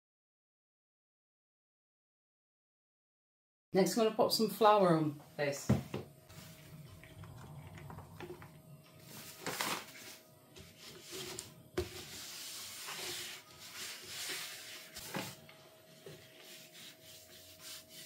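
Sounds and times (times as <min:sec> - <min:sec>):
hand swishing flour on board: 0:12.0 - 0:15.4.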